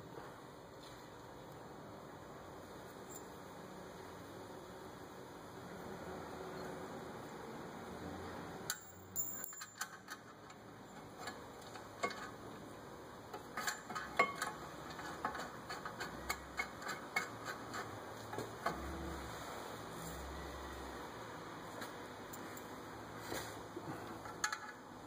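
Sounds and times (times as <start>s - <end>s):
light metallic clicks and clinks: 8.7s - 10.6s.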